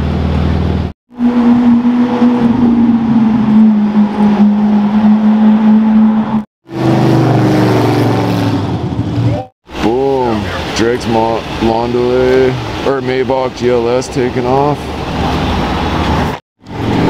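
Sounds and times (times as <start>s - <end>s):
engine with falling pitch: 0.0s - 17.0s.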